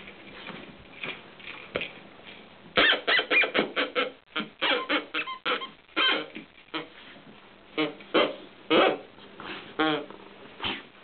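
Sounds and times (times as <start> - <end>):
dog toy honking grunts: 2.8 - 6.9, 7.8 - 9.1.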